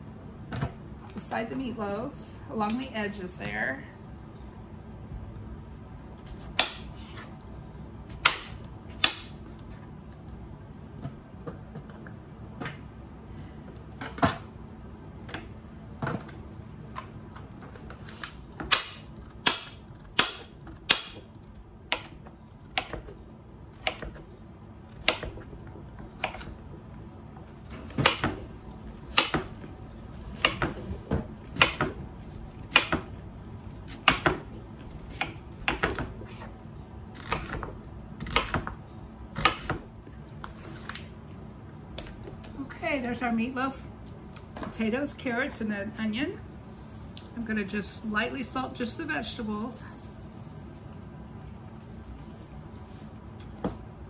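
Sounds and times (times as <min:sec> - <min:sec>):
knife chopping on cutting board: 0:22.8 - 0:23.1, 0:32.7 - 0:33.1, 0:33.9 - 0:34.4, 0:35.1 - 0:36.5, 0:37.2 - 0:38.8, 0:39.4 - 0:39.8.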